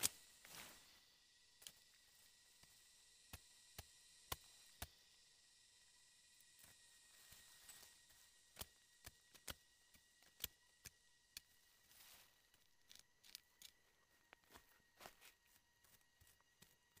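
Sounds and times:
machete scraping and chopping soil: 0.0 - 0.8
rush of flung soil: 0.0 - 1.0.

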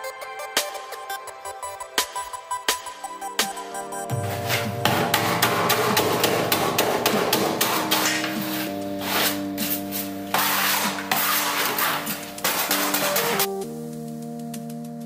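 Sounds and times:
background music with held chords: 0.0 - 15.0
metal scraper chipping tile adhesive: 4.2 - 13.5.

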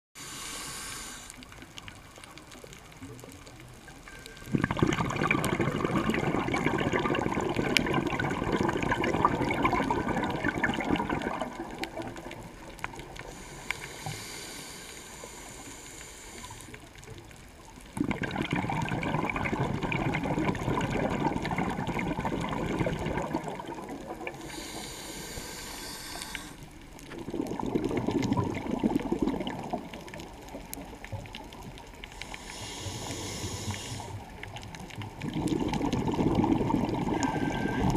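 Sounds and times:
hissing regulator inhalations: 0.2 - 1.6, 13.2 - 16.8, 24.3 - 26.8, 32.1 - 34.3
exhaled bubbles underwater: 1.4 - 13.9, 16.4 - 37.9.

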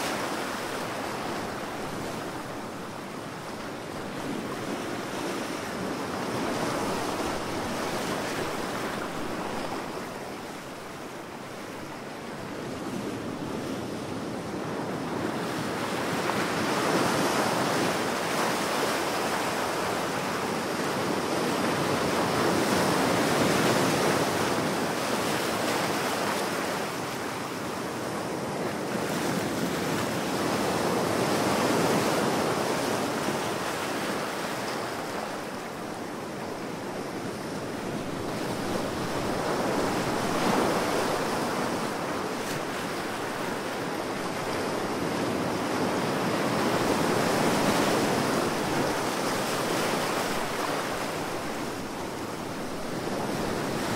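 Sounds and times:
ocean waves breaking: 28.2 - 53.9.

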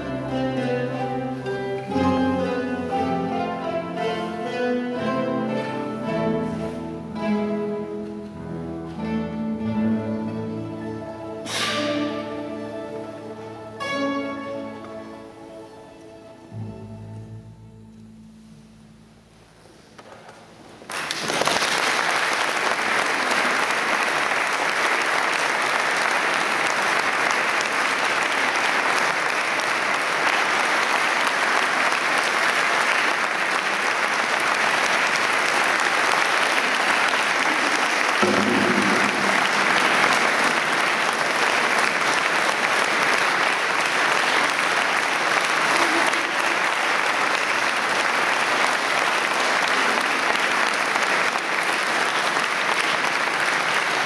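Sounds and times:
audience applauding: 20.8 - 54.0.

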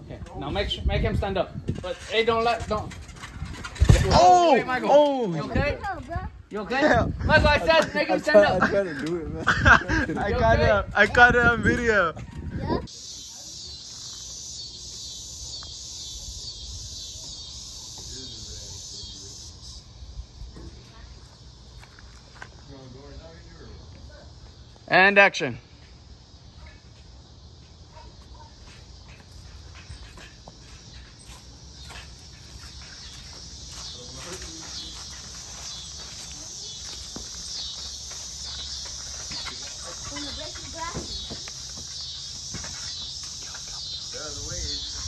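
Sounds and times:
insects chirping: 0.0 - 45.0
footsteps on dry dirt and grass: 21.4 - 22.7, 28.6 - 45.0.

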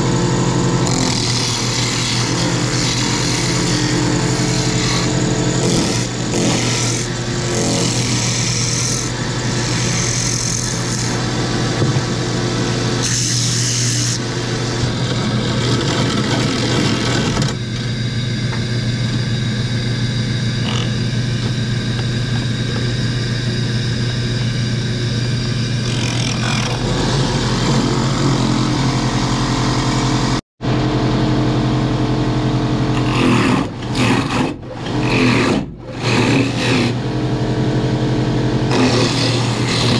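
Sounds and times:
hissy wood cutting noise: 0.0 - 17.5, 32.9 - 37.1, 38.7 - 39.9
woodworking machine motor hum: 0.0 - 39.9.

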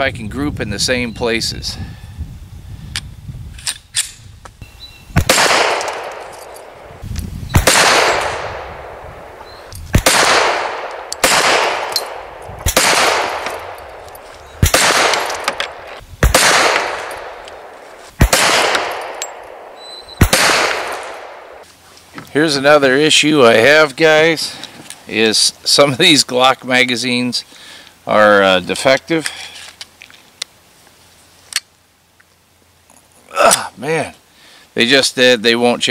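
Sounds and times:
pistol shots with echo: 5.2 - 6.9, 7.5 - 21.6
pistol handling clicks: 9.7 - 21.4.

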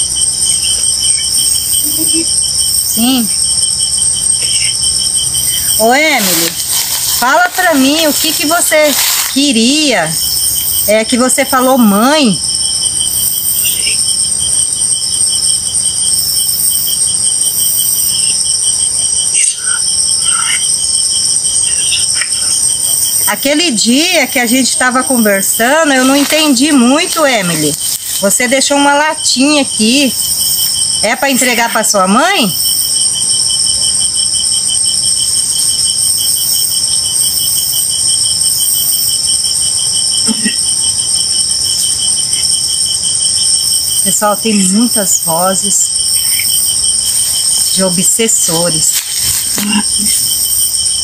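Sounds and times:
cricket chirping: 0.0 - 51.0
high insect trill: 0.0 - 51.0
radio static hiss: 4.4 - 4.8, 5.4 - 10.2, 21.6 - 22.7.

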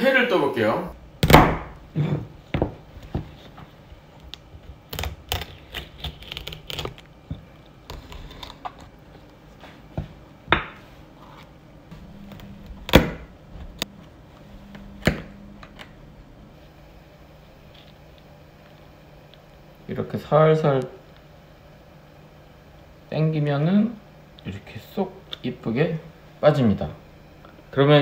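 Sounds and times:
knife cutting crab shell: 4.9 - 7.0.

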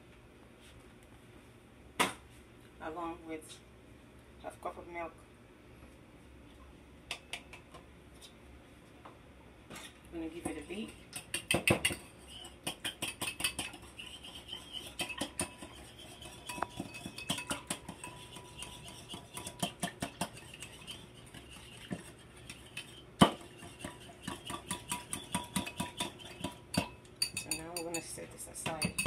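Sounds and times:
whisk tapping ceramic bowl: 10.4 - 29.0.

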